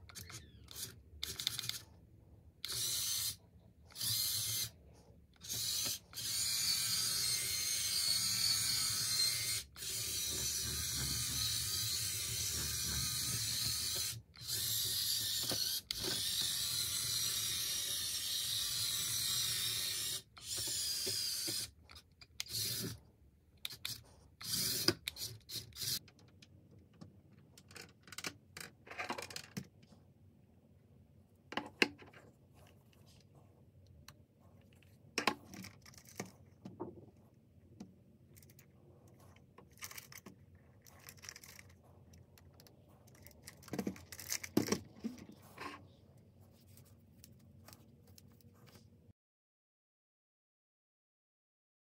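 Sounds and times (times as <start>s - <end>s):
toy car motor whirring: 0.1s - 1.9s, 2.6s - 4.8s, 5.4s - 23.0s, 23.6s - 26.1s, 39.6s - 41.8s, 42.4s - 45.8s.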